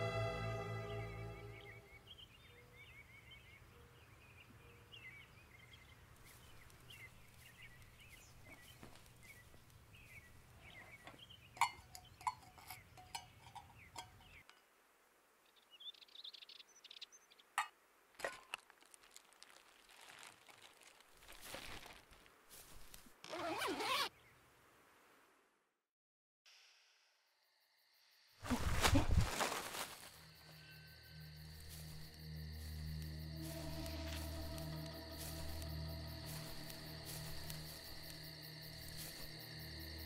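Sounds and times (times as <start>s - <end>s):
faint bird chirps: 0.6s - 14.6s
small clicks and clinks: 11.6s - 14.6s
plastic bag rustling: 18.2s - 23.1s, 28.5s - 30.2s
low hum: 30.6s - 40.0s.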